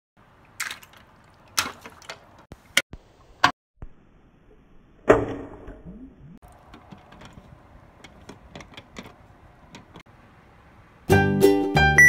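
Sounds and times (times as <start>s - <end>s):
toy splashing into water: 0.4s - 2.4s.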